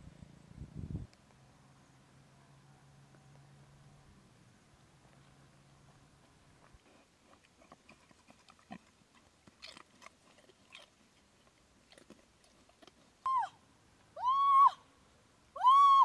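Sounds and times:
pig rooting in dry leaves: 0:05.3 - 0:13.3.

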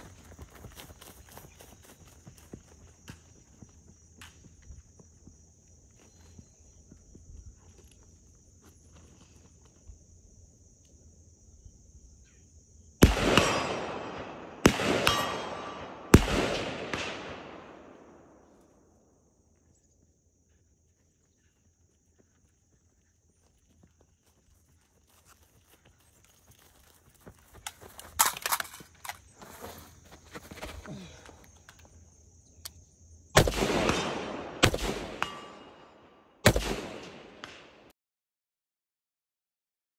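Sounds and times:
rifle shots with echo: 0:13.0 - 0:18.5, 0:33.4 - 0:37.9.

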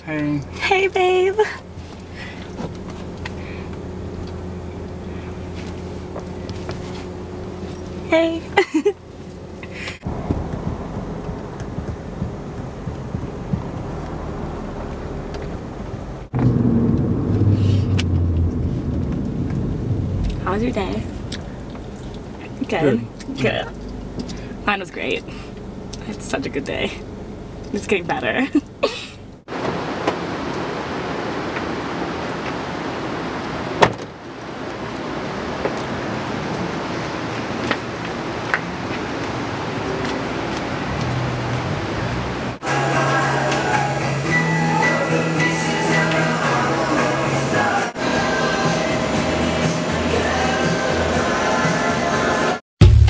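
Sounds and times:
car engine and road noise: 0:00.0 - 0:53.0
outdoor background noise: 0:00.0 - 0:53.0
car door thump: 0:33.8 - 0:34.1.

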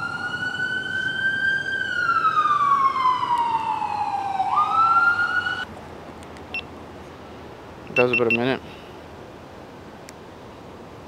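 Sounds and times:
emergency siren wailing: 0:00.0 - 0:05.7.

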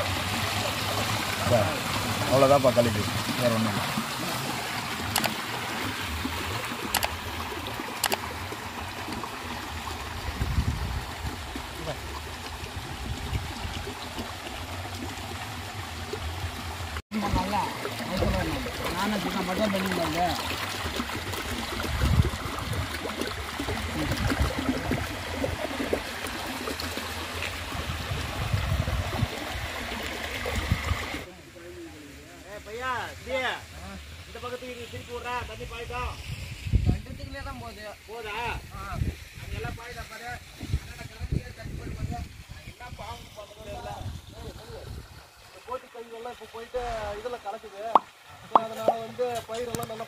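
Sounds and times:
water running from a pipe: 0:00.0 - 0:50.0
sharp clicks: 0:05.1 - 0:05.4, 0:06.9 - 0:07.2, 0:08.0 - 0:08.2.

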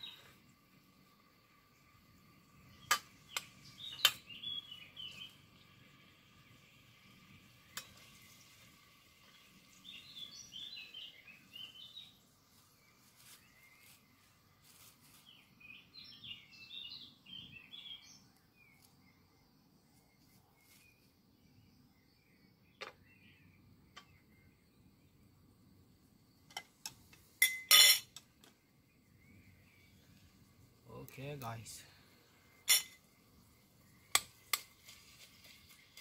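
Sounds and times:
bird chirping: 0:00.0 - 0:14.3, 0:15.1 - 0:25.4, 0:26.2 - 0:34.7
utensil clinking steel pot: 0:26.5 - 0:28.2, 0:32.6 - 0:33.0.

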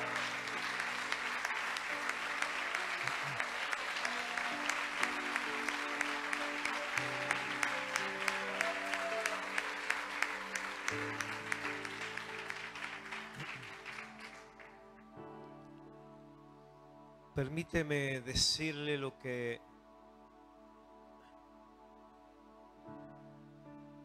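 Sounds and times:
congregation applauding: 0:00.0 - 0:15.2
soft instrumental music: 0:00.0 - 0:24.0.

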